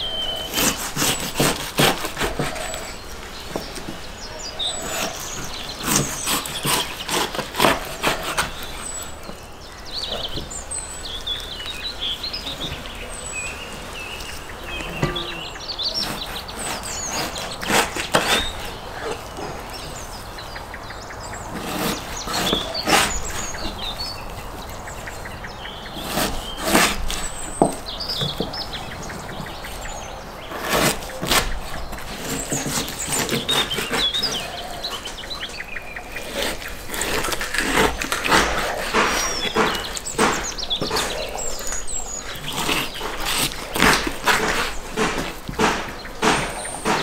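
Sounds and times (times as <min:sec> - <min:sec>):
birds chirping: 0:00.0 - 0:47.0
knife cutting meat on plastic board: 0:42.3 - 0:47.0.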